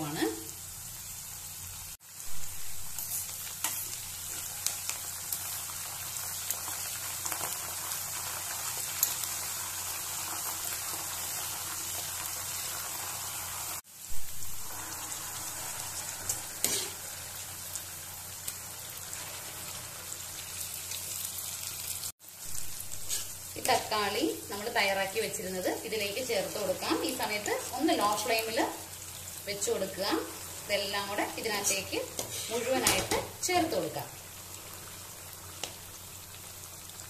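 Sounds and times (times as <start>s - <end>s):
food sizzling in hot oil: 0.0s - 37.0s
spoon stirring in pan: 31.7s - 33.3s.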